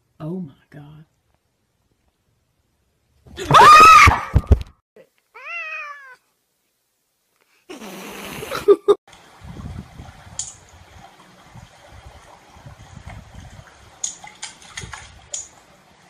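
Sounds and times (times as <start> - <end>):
cat meowing: 5.4 - 6.2.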